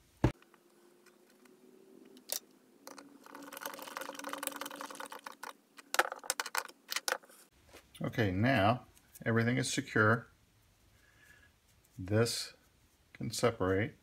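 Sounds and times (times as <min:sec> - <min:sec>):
screwdriver and parts clicking: 0:02.1 - 0:03.1.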